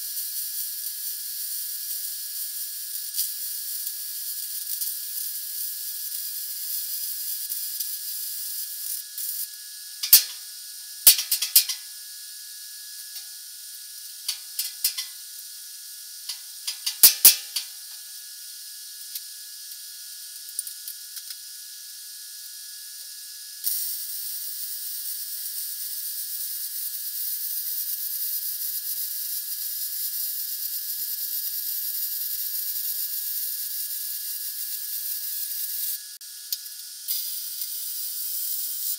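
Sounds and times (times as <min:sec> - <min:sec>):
welder sizzling: 0:00.0 - 0:21.8, 0:30.7 - 0:38.9
sharp metallic knocks and clicks: 0:10.0 - 0:10.4, 0:11.1 - 0:11.8, 0:14.3 - 0:15.1, 0:16.7 - 0:17.7.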